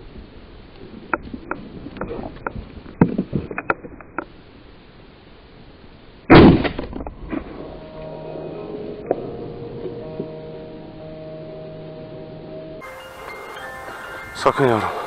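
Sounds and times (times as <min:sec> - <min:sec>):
shotgun shot: 0:06.3 - 0:06.9.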